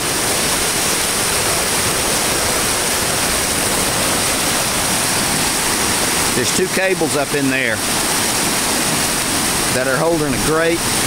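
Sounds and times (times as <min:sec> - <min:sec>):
flood water rushing: 0:00.0 - 0:11.0.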